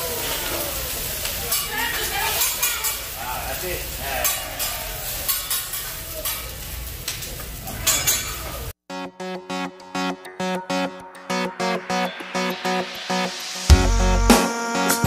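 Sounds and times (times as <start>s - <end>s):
food sizzling on a griddle: 0.0s - 8.8s
electronic music with plucked guitar: 8.9s - 15.0s.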